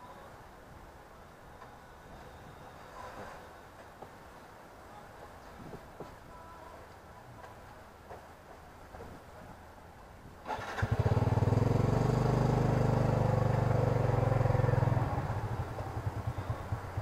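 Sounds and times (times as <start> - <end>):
motorcycle engine running: 10.6 - 17.0.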